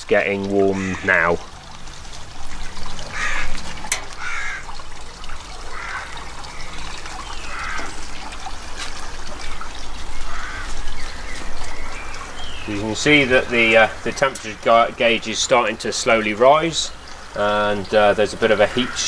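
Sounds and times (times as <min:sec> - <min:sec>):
bird harsh calls: 0:00.7 - 0:01.4, 0:02.8 - 0:04.8, 0:05.5 - 0:08.2, 0:10.0 - 0:14.6.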